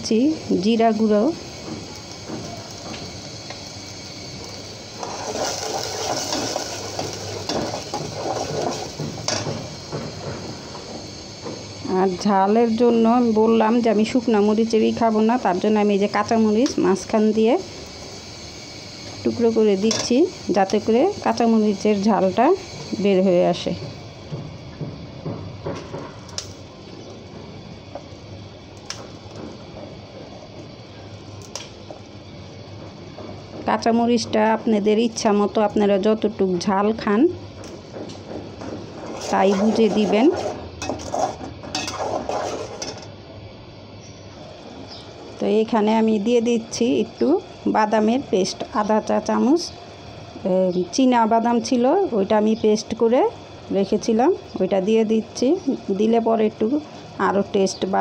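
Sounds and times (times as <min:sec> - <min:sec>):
curry simmering in a pot: 0:00.6 - 0:11.8.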